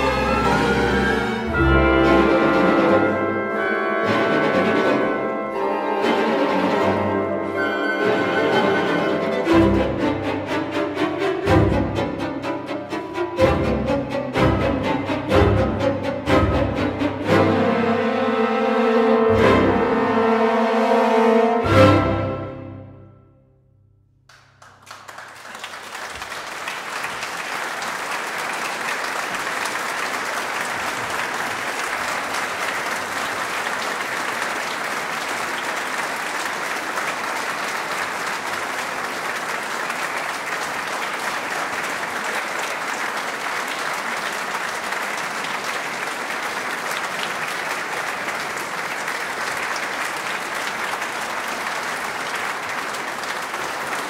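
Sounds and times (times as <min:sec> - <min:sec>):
audience applauding: 0:24.3 - 0:54.0.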